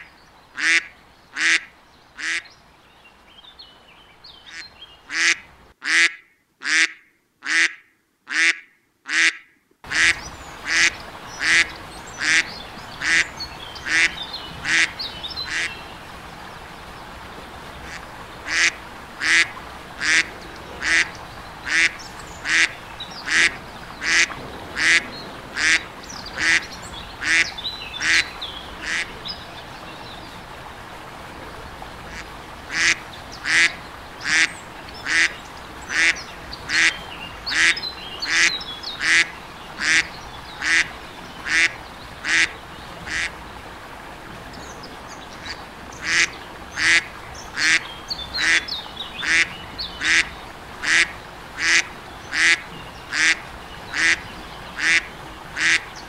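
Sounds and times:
duck quacking: 0.6 - 2.5, 4.5 - 13.2, 13.8 - 15.7, 17.9 - 25.0, 25.6 - 29.1, 32.1 - 42.5, 43.1 - 43.3, 46.0 - 47.8, 49.2 - 54.2, 54.8 - 55.8.

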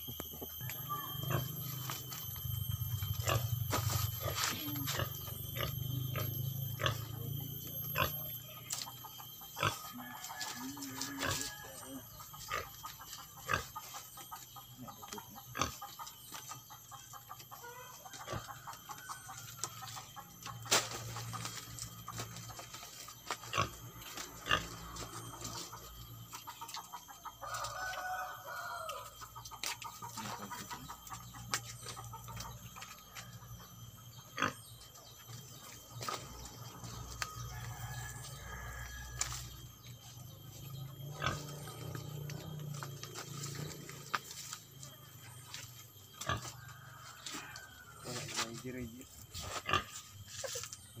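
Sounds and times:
faint animal calls: 0.0 - 51.0.

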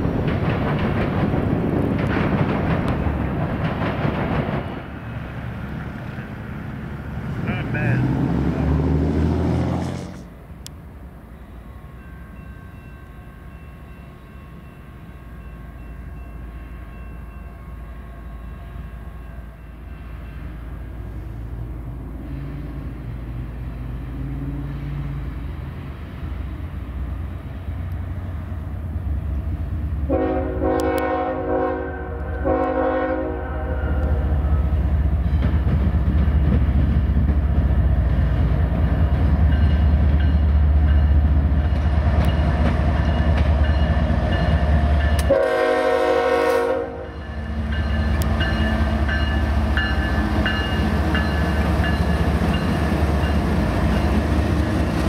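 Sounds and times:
diesel locomotive engine rumble: 0.0 - 55.0
train horn blasts: 30.1 - 34.3, 45.2 - 47.3.

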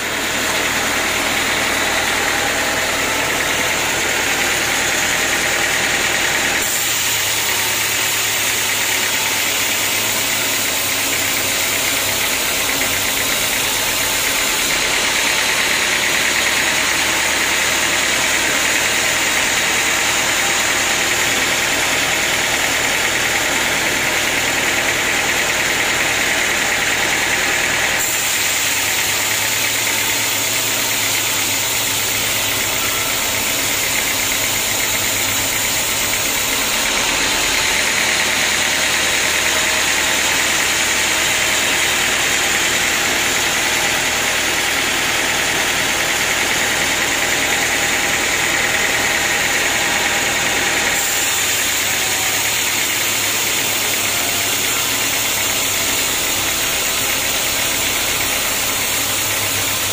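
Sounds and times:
band saw cutting log: 0.0 - 59.9.

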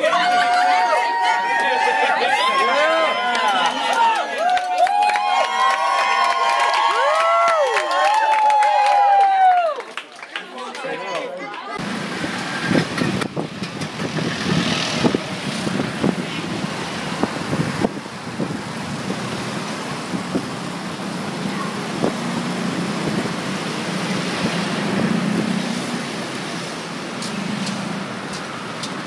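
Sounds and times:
vehicles passing: 10.4 - 29.0.

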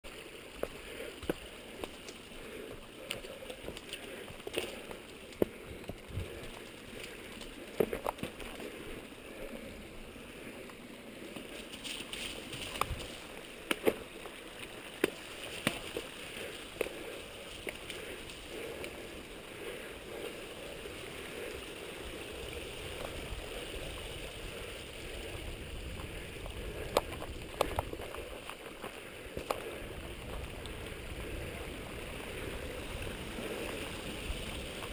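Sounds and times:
bike clicks and knocks: 3.1 - 8.7, 11.3 - 14.1, 25.9 - 30.7.

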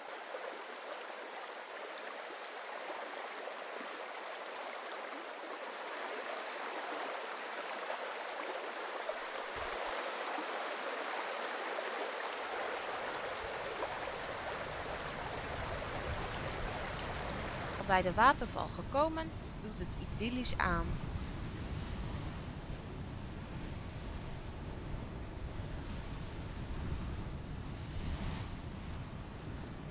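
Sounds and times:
river rushing over stones: 0.0 - 18.2.

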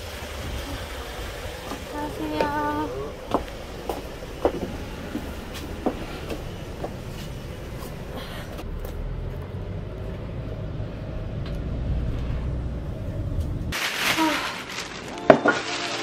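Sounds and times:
van road and engine rumble: 0.0 - 15.4.

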